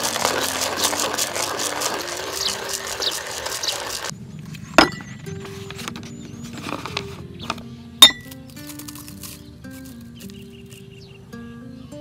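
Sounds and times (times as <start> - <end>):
hand-cranked coffee grinder: 0.0 - 4.1.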